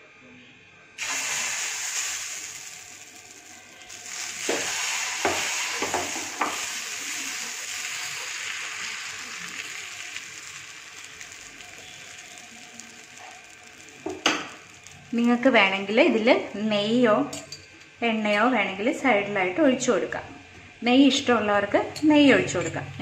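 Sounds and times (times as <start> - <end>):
ladle clicking on griddle: 1.0 - 15.4
batter sizzling on griddle: 1.0 - 17.5.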